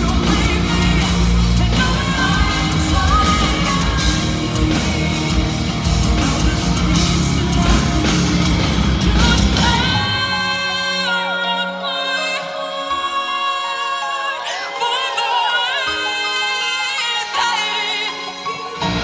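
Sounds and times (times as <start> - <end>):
drum kit: 0.0 - 10.5
electric guitars: 0.0 - 19.0
woman singing: 0.0 - 19.0.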